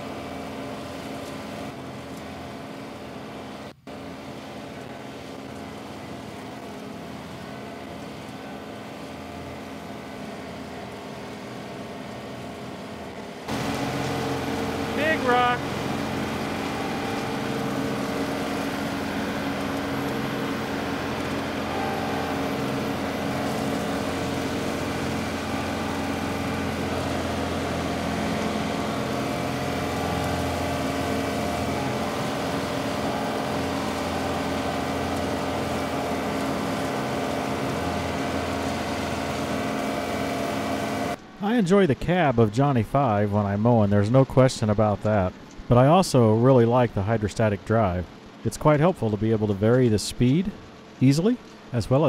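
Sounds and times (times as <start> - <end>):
tractor diesel engine drone: 0.0 - 52.0
mower blades spinning: 4.0 - 41.2.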